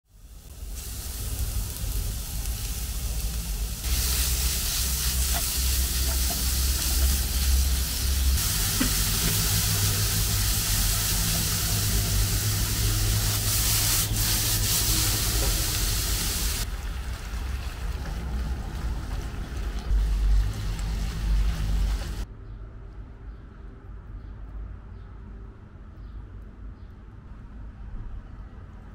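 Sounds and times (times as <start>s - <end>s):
food sizzling in hot oil: 0.1s - 22.2s.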